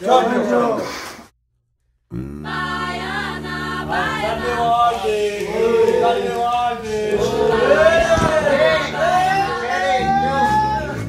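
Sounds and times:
low drone: 0:02.1 - 0:11.0
voices chanting together: 0:02.4 - 0:11.0.

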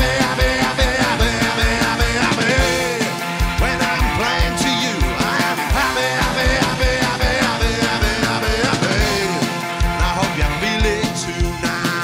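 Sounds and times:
fast kick drum beat: 0:00.0 - 0:12.0
rock band song: 0:00.0 - 0:12.0.

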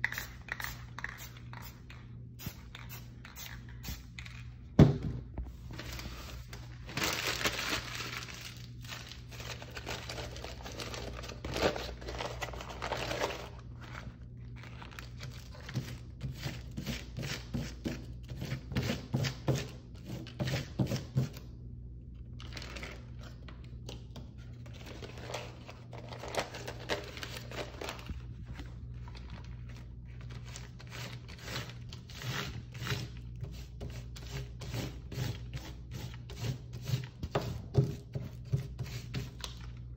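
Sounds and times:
crumpled newspaper rustling: 0:05.6 - 0:15.7, 0:24.8 - 0:31.9.

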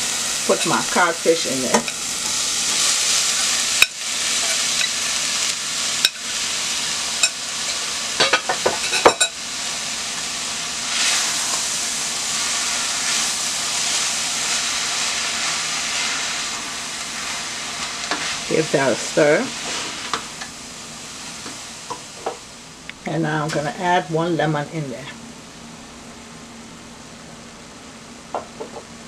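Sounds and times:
food sizzling in oil: 0:00.0 - 0:22.7.

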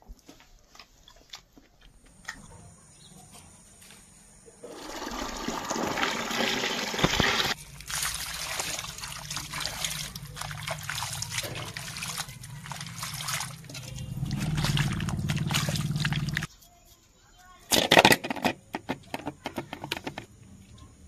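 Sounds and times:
water rushing: 0:04.7 - 0:16.5
water splashing: 0:04.7 - 0:16.5.

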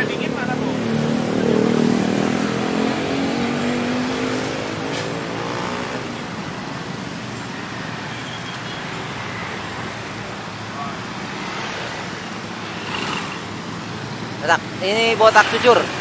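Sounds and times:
vehicle engine passing by: 0:00.0 - 0:06.2
traffic noise: 0:00.0 - 0:16.0.

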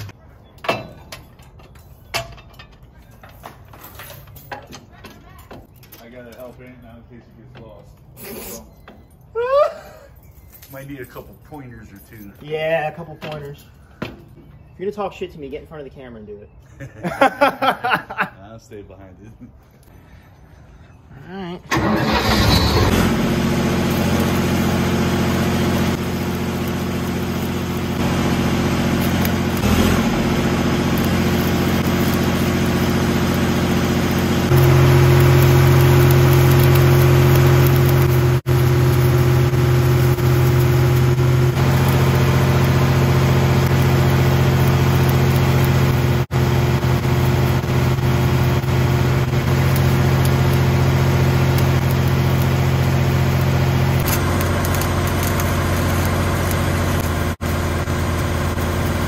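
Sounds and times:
diesel engine running: 0:21.7 - 0:59.0
welding arc crackle: 0:21.8 - 0:59.0.

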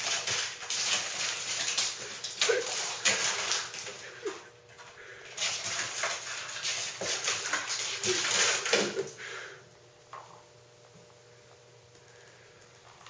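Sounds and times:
cat claws scratching wooden door: 0:00.0 - 0:04.0.

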